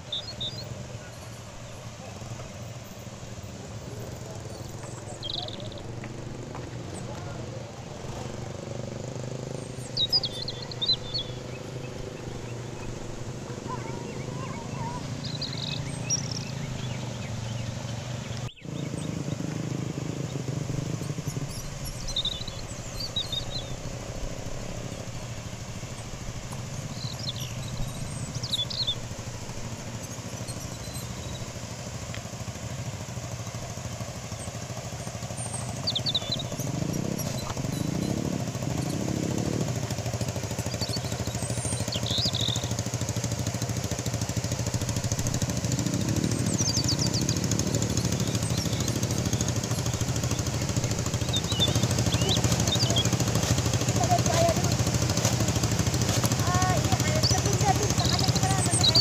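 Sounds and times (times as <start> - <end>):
bird chirps: 0.0 - 59.0
small engine revving: 0.0 - 59.0
falling water rushing: 22.6 - 59.0.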